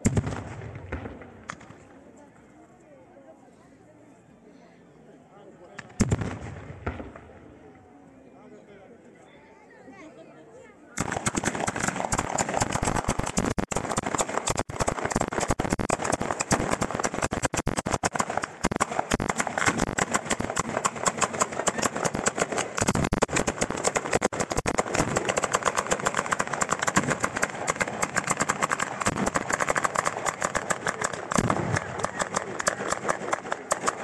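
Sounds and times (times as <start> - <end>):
fireworks bangs and crackles: 0.0 - 1.9, 5.8 - 7.7, 11.0 - 34.0.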